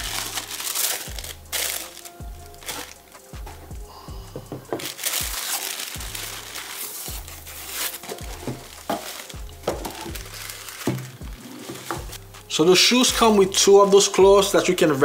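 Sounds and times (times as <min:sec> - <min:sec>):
tissue paper crinkling: 0:00.0 - 0:03.3, 0:04.6 - 0:12.2
background music with bass beat: 0:00.0 - 0:15.0.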